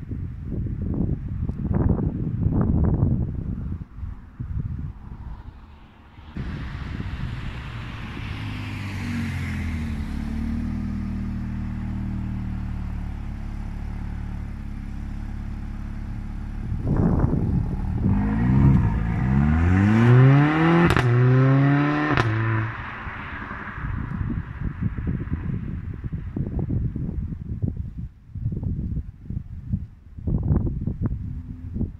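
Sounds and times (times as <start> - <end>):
car engine idling: 5.4 - 18.1
car engine revving: 5.4 - 25.6
exhaust cracks: 6.2 - 21.4.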